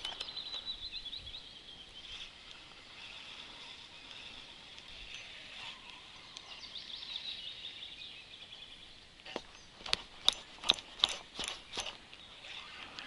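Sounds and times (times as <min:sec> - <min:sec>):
sharp clicks: 0:00.0 - 0:00.6, 0:09.4 - 0:12.2
birdsong: 0:00.0 - 0:13.0.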